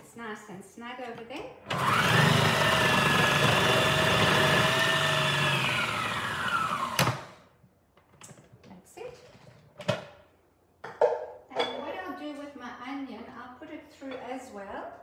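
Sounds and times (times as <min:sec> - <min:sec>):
food processor stopping clunk: 0:01.7 - 0:07.4
food processor whining: 0:01.7 - 0:07.5.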